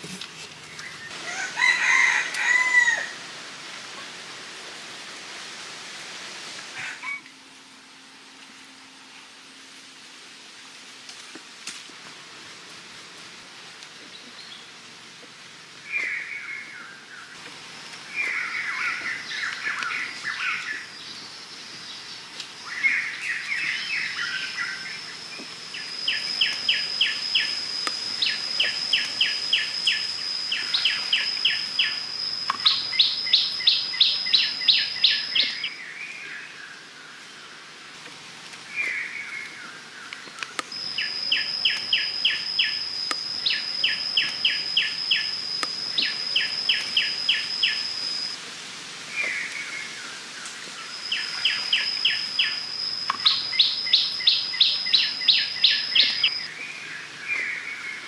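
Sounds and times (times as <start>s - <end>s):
high-pitched insect drone: 0.9s - 5.1s, 14.8s - 58.0s
birds chirping and singing: 18.0s - 37.3s, 38.7s - 48.4s, 49.2s - 58.0s
evenly spaced chirps: 18.1s - 35.8s, 40.6s - 48.4s, 50.8s - 56.5s.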